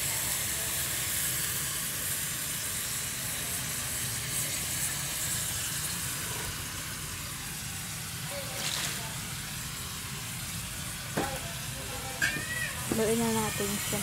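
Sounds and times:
food sizzling in hot oil: 0.0s - 14.0s.

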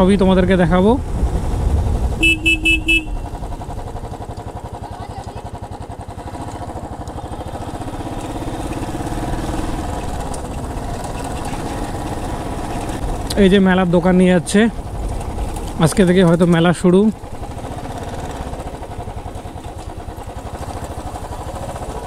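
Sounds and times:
motorcycle engine running: 0.0s - 22.0s
horn short beeps: 2.2s - 3.2s.

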